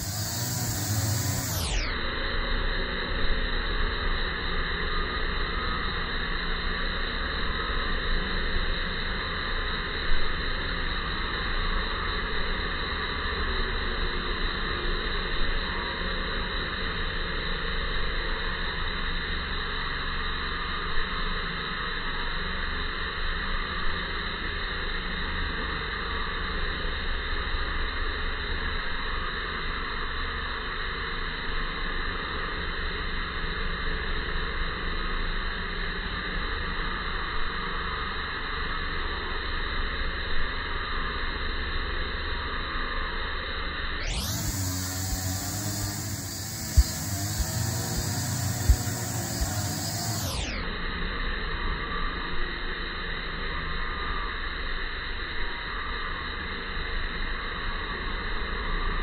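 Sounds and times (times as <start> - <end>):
steady background hiss: 0.0 - 11.0, 44.2 - 56.0.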